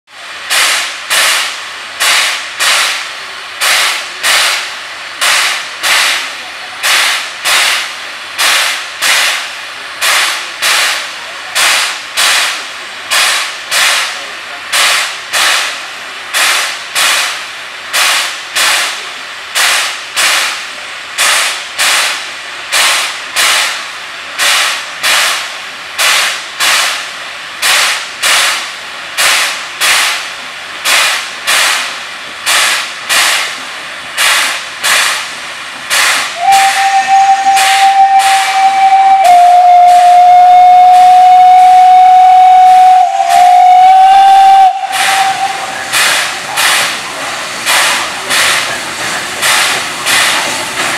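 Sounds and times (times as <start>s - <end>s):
steam locomotive chuffing: 0.1s - 50.9s
multi-tone steam whistle: 36.3s - 46.4s.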